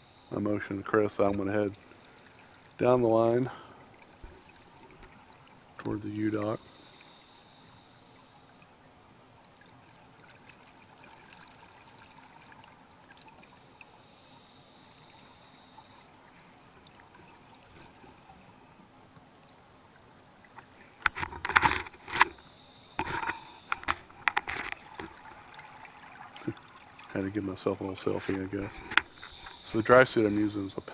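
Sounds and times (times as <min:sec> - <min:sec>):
underwater hiss: 0:06.5 - 0:08.6, 0:13.5 - 0:16.4, 0:27.5 - 0:30.9.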